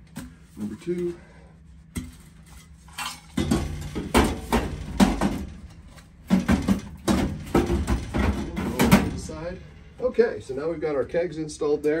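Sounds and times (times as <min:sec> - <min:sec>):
metal keg clanking and scraping: 0:02.0 - 0:11.3
knocks and thumps: 0:03.4 - 0:09.8.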